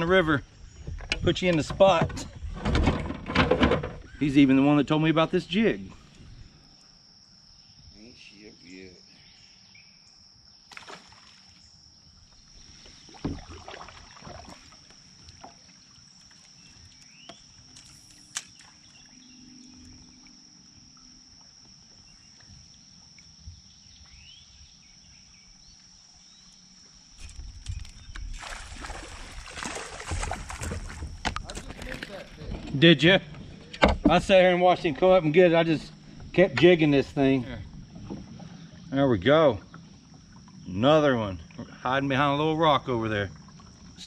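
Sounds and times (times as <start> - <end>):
high insect drone: 3.7 - 44.0
light water sounds: 10.7 - 24.5, 25.5 - 32.5, 33.4 - 44.0
knocks against kayak hull: 13.2 - 13.6, 33.4 - 34.4.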